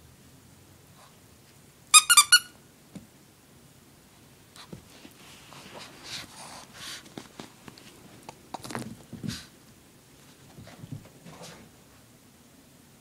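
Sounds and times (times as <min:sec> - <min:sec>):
short high-pitched squeaks: 0:02.0 - 0:02.5.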